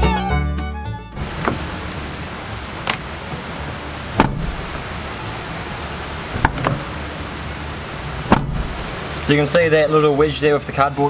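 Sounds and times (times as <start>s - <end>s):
car door knocks and clicks: 1.2s - 2.0s, 4.1s - 4.8s, 6.3s - 6.9s, 8.3s - 8.9s
steady hiss: 1.2s - 10.4s.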